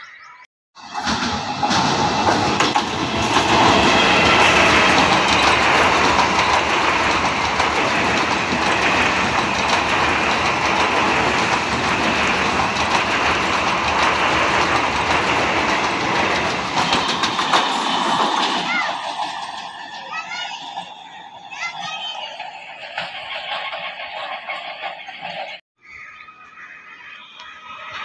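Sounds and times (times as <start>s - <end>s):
train passing at speed: 0.8s - 25.6s
wheels clicking on rails: 0.8s - 25.6s.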